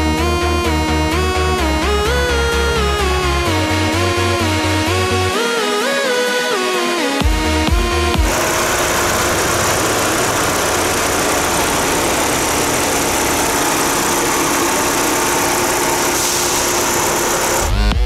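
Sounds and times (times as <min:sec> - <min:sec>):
pickup engine idling: 0:08.2 - 0:18.0.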